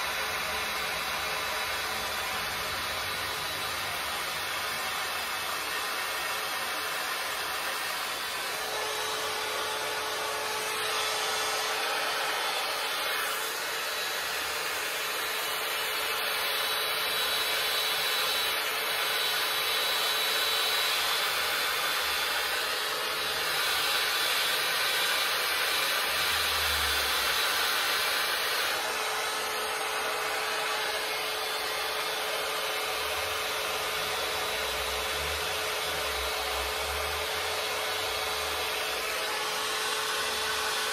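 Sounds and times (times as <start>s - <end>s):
hot air brush blowing: 0.0s - 40.9s.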